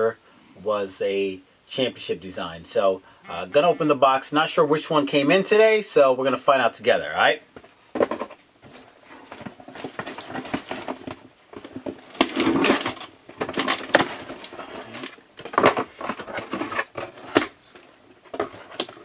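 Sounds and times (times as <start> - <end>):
cardboard rustling: 7.6 - 19.0.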